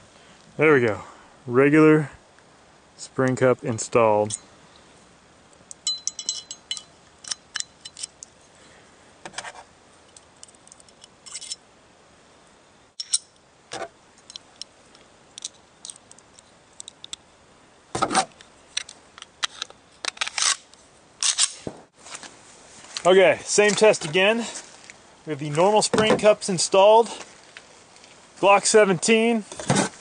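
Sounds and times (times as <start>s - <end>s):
small metallic clicks and scrapes: 5.6s - 8.4s, 9.3s - 11.6s, 13.0s - 17.2s, 18.1s - 21.6s.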